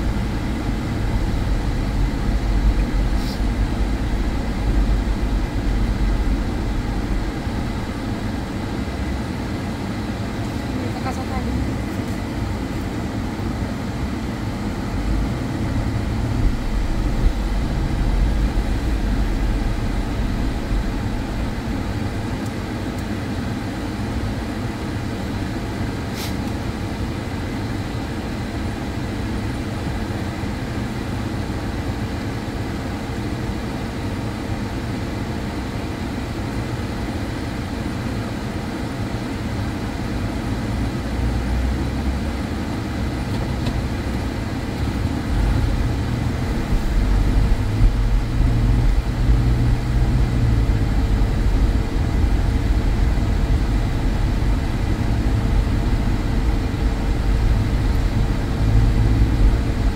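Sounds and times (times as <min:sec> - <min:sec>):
car rumbling on snow: 0:00.0 - 0:32.3, 0:40.0 - 0:59.9.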